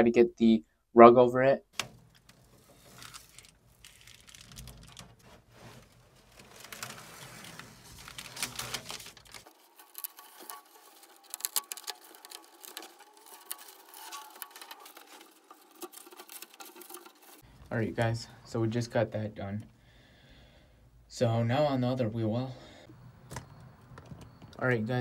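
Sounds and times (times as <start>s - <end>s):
tape crackling and rustling: 1.7s - 17.4s.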